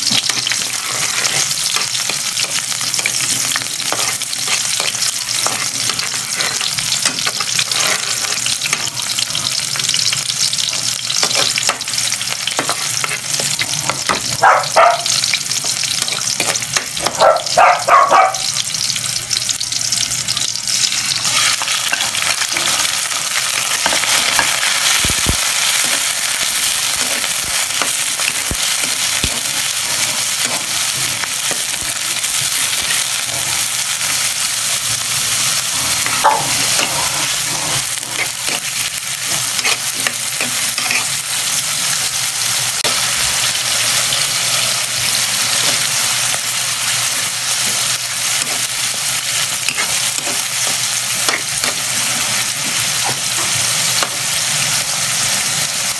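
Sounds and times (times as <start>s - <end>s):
clams and garlic sizzling in a wok: 0.0s - 55.9s
spatula scraping and clicking: 0.1s - 9.0s, 15.6s - 17.2s, 36.0s - 41.2s.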